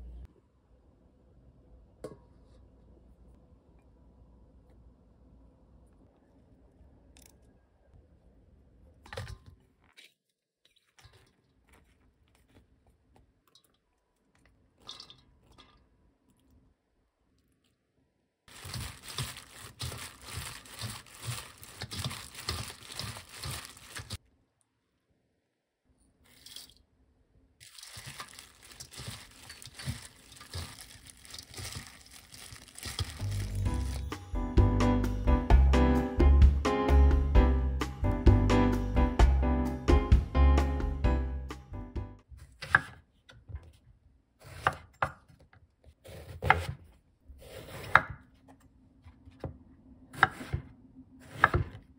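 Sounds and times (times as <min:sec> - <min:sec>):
food handled in metal bowl: 0:09.0 - 0:15.8, 0:18.5 - 0:24.2, 0:27.6 - 0:34.0
plastic glove crinkling: 0:18.5 - 0:24.2, 0:27.6 - 0:34.1.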